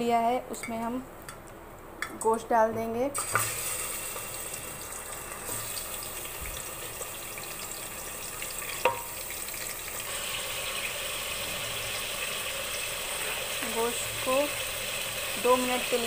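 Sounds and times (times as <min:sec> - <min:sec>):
meat sizzling in hot oil: 0:03.2 - 0:16.0.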